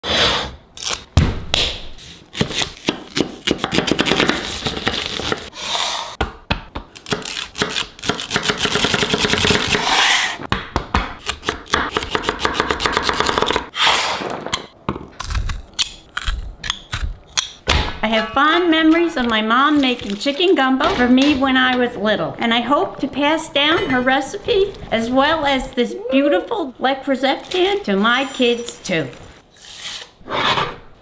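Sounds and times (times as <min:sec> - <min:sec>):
knife scraping board: 0:09.6 - 0:10.4
knife chopping on wooden board: 0:10.5 - 0:13.6.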